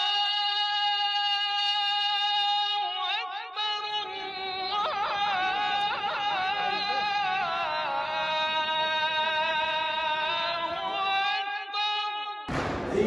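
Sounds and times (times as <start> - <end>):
solo voice singing a chant: 0.0 - 12.3
low crowd noise: 4.0 - 11.2, 12.5 - 13.0.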